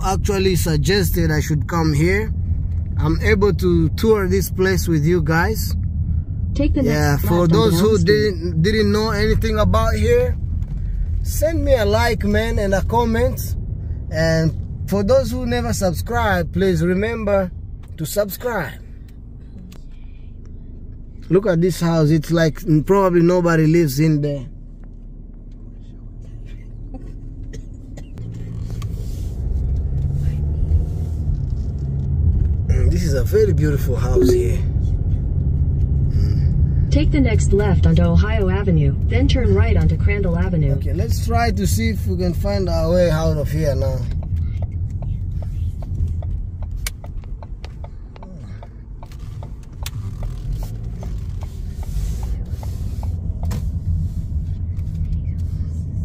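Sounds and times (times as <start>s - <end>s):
car engine and tyre rumble: 0.0s - 56.0s
turn signal ticking: 17.5s - 56.0s.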